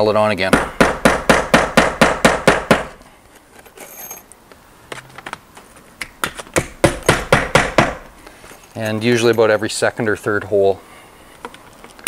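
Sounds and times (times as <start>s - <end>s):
hammer striking nail: 0.5s - 3.0s, 6.2s - 8.1s.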